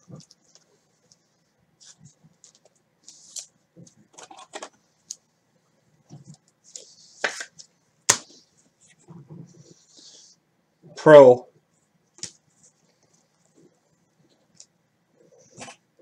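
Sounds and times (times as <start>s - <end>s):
cards and plastic sleeves rustling: 0.0s - 5.2s, 6.1s - 10.3s.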